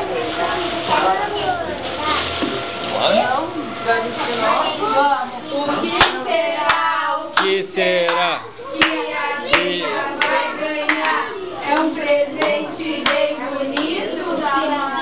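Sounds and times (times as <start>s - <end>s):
women and children singing: 4.5s - 15.0s
rhythmic hand clapping: 6.0s - 14.2s.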